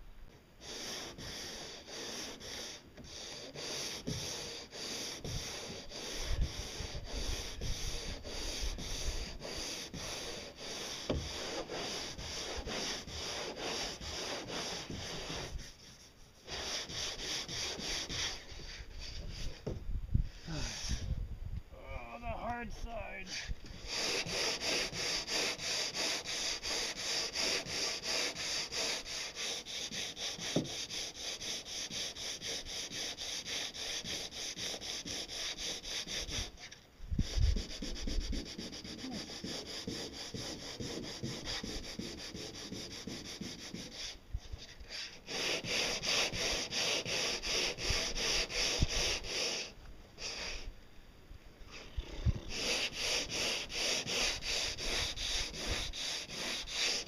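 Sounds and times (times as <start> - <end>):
hand sanding strokes: 0.6 - 19.7, 22.2 - 50.7, 51.7 - 57.0.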